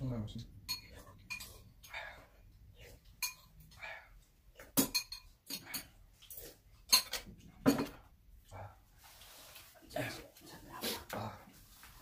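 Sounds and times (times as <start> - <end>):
spoons clinking against bowls: 0.6 - 2.1, 3.2 - 3.7, 4.7 - 8.0.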